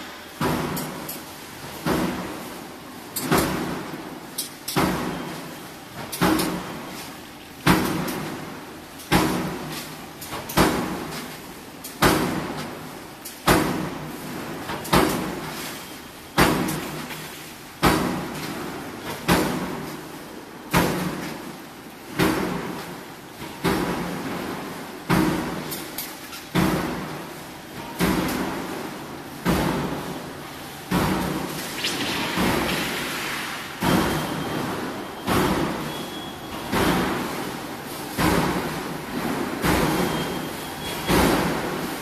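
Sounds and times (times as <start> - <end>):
power press metallic bangs: 30.9 - 36.0.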